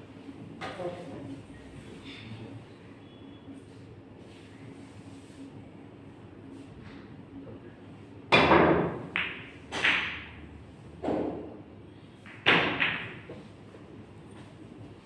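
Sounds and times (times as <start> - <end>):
pool balls knocking: 8.3 - 10.4, 12.3 - 13.4.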